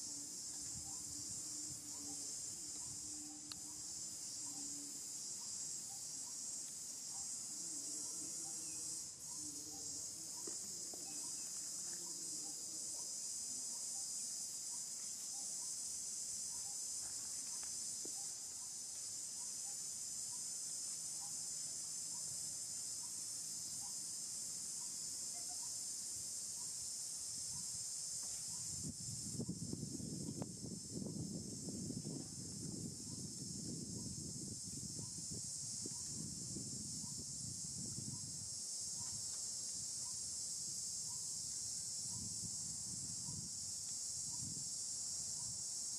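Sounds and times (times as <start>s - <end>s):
insects chorus droning: 0.0s - 45.9s.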